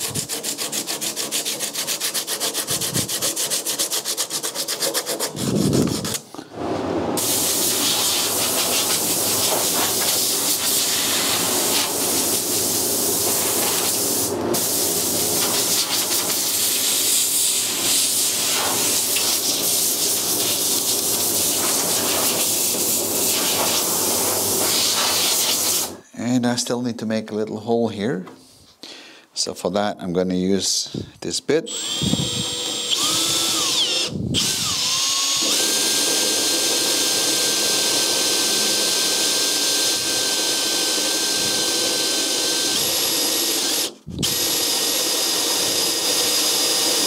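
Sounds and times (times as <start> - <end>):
hand sanding strokes: 0.0 - 6.2, 7.2 - 23.9
air blow gun hissing: 7.2 - 26.0.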